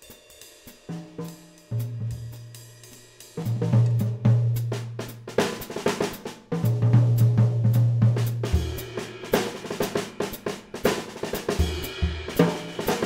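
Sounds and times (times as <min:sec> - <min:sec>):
drum kit groove: 0:00.0 - 0:13.0.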